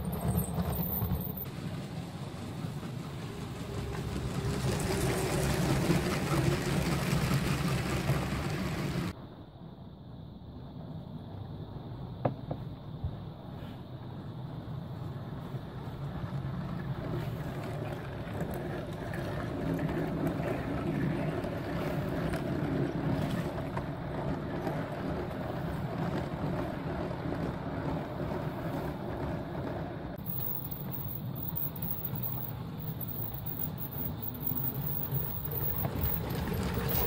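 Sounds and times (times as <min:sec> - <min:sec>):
toy train motor drone: 0:30.2 - 0:37.0.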